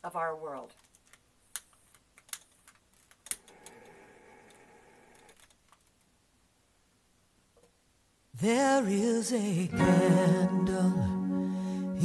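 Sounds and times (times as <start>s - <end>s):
gas flame hiss: 3.4s - 5.3s.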